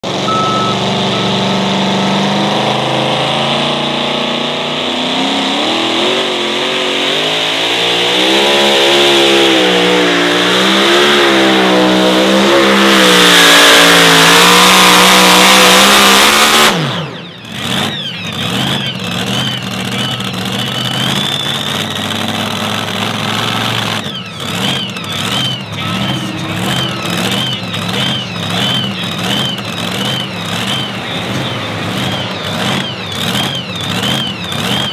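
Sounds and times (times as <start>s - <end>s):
pulling truck engine running flat out: 0.0s - 6.9s, 7.9s - 34.9s.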